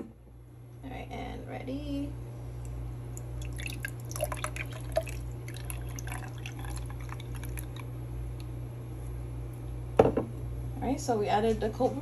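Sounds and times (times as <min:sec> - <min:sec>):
coffee pouring onto ice: 0:03.4 - 0:07.9.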